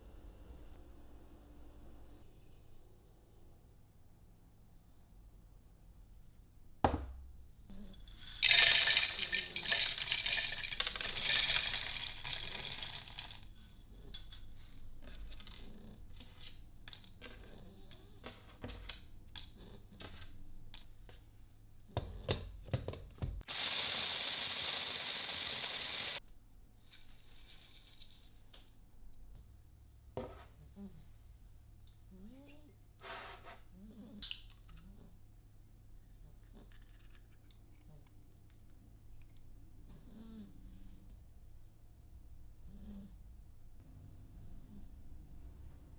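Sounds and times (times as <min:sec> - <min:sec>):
cereal rattling into plastic bowl: 0:08.4 - 0:13.4
electric chopper running: 0:23.5 - 0:26.2.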